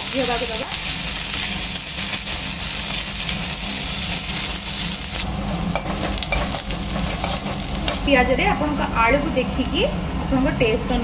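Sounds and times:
onions sizzling in oil: 0:00.0 - 0:08.5
metal spatula scraping: 0:05.6 - 0:08.1.

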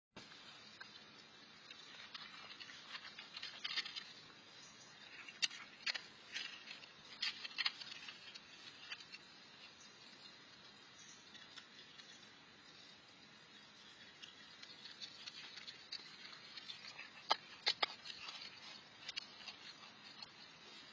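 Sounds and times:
raccoons crunching dry food: 0:00.2 - 0:20.9
steady hiss: 0:00.2 - 0:20.9.

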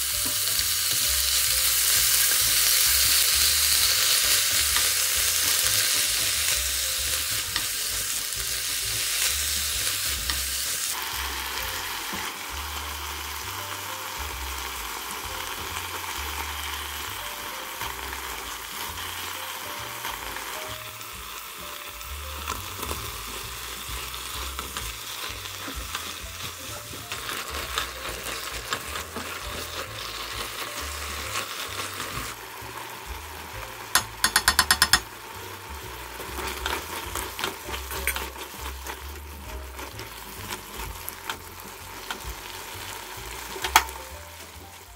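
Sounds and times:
food sizzling in a frying pan: 0:00.0 - 0:44.9
spatula stirring: 0:22.6 - 0:32.4, 0:33.9 - 0:35.1, 0:35.9 - 0:44.9.

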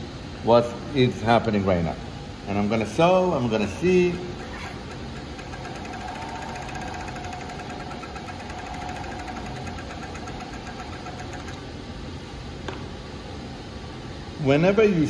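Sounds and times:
sewing machine rattling: 0:03.5 - 0:11.8.

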